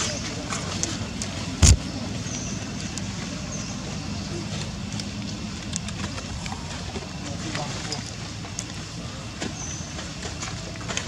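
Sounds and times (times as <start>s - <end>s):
steady low rumble: 0.0s - 10.9s
sharp thump: 1.6s - 1.8s.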